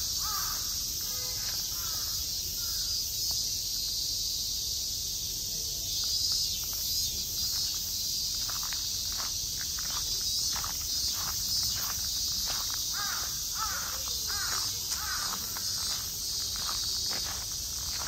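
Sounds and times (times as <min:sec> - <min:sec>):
high insect drone: 0:00.0 - 0:18.0
crow cawing: 0:00.2 - 0:00.7, 0:01.4 - 0:02.8, 0:12.9 - 0:15.6
footsteps: 0:06.3 - 0:18.0.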